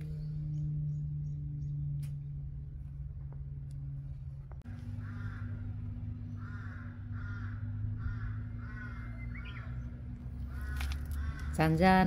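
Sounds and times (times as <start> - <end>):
steady low hum: 0.0 - 12.0
bird harsh calls: 4.8 - 11.8.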